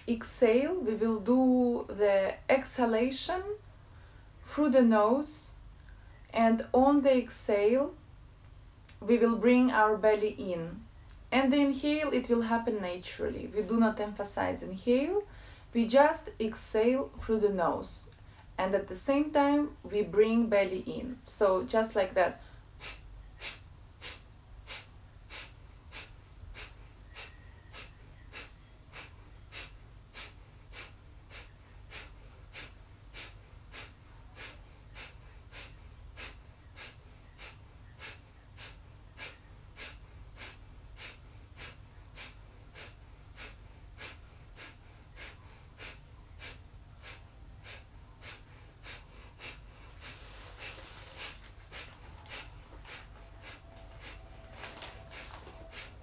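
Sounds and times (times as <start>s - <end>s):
forceful nasal exhales: 22.8s - 56.0s.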